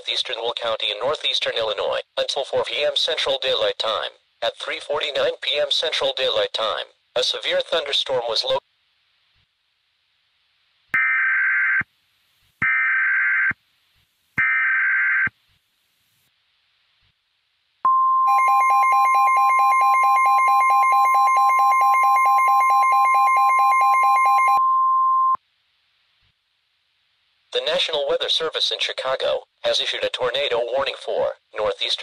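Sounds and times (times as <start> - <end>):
steady alarm beep: 17.9 - 25.4.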